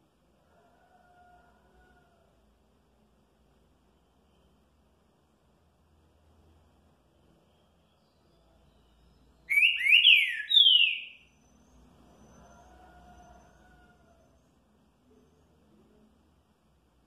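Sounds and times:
bird whistling descending notes: 0:09.5 - 0:11.8.

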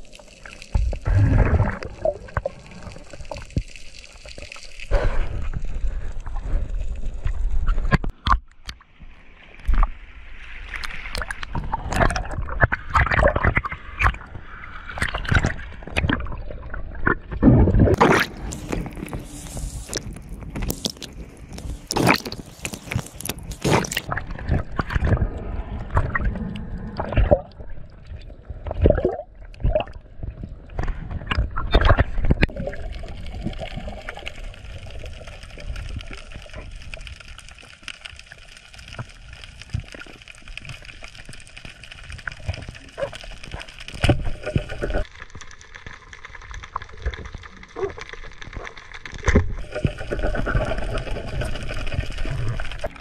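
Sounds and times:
water gurgling and sloshing: 0:00.0 - 0:53.0
steady hiss: 0:18.2 - 0:23.2.

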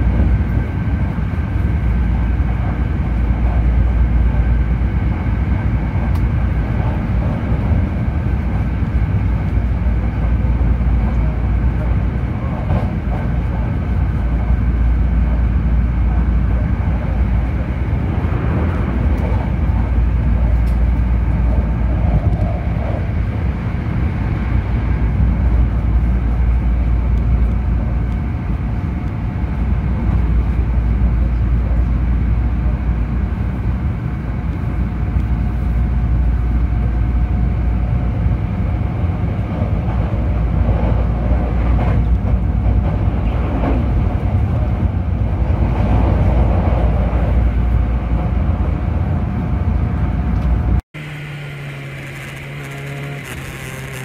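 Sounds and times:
train wheels rumbling on rail: 0:00.0 - 0:54.0
faint whine: 0:49.6 - 0:54.0.

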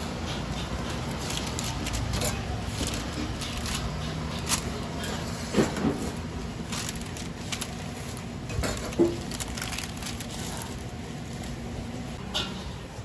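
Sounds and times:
paper wrapper crinkling: 0:06.6 - 0:11.6.

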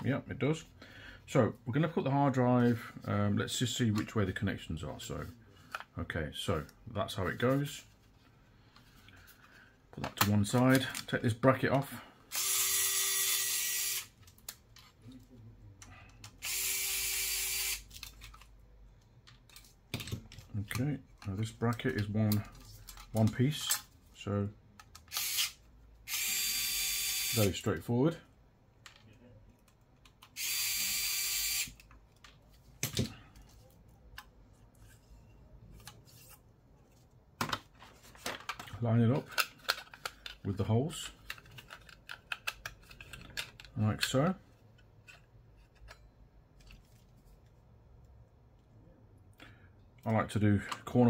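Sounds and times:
electric screwdriver whirring: 0:12.3 - 0:14.1, 0:16.4 - 0:17.8, 0:25.1 - 0:27.4, 0:30.4 - 0:31.8.

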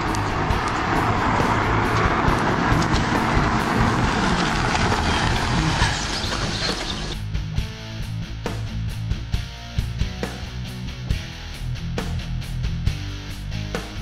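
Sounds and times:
vehicle rushing and rumbling: 0:00.0 - 0:07.5
music: 0:00.0 - 0:14.0.

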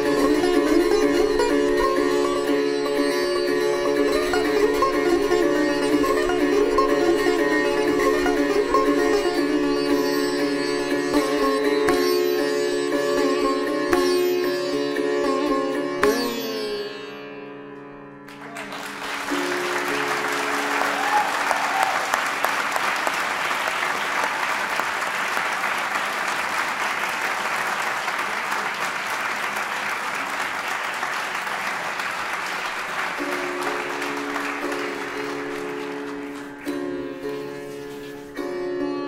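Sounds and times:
sitar music: 0:00.0 - 0:39.0
audience applauding: 0:18.3 - 0:37.1.

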